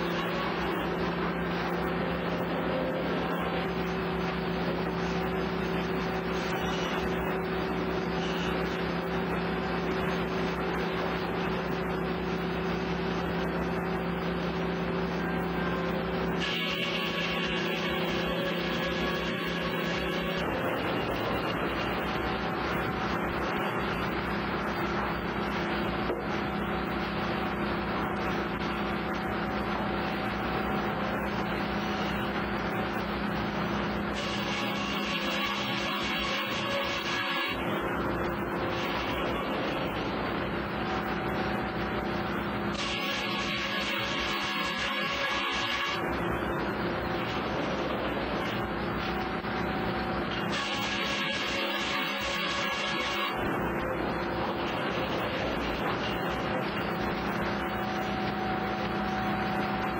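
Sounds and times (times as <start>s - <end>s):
constant low hum: 0.0s - 59.9s
sawmill machinery din: 0.0s - 59.9s.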